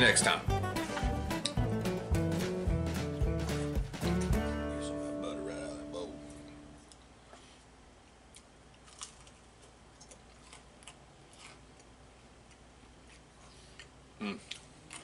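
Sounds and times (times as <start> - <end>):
man chewing crispy food: 8.2 - 15.0.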